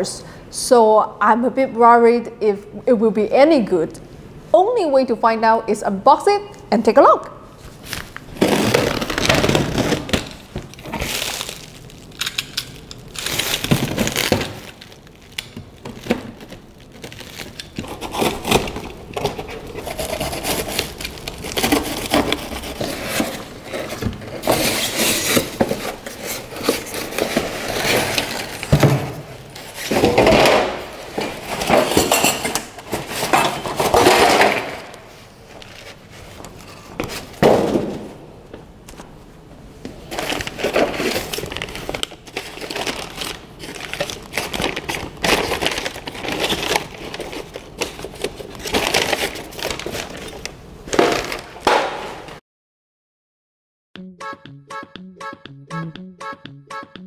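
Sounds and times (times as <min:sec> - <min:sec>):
plastic wrap crinkling and tearing: 0:07.7 - 0:28.8, 0:40.0 - 0:51.6.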